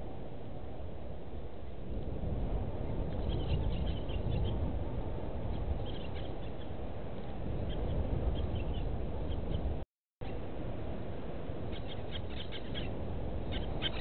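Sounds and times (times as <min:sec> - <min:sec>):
small birds chirping: 0:05.5 - 0:06.8, 0:07.6 - 0:09.8, 0:11.7 - 0:14.0.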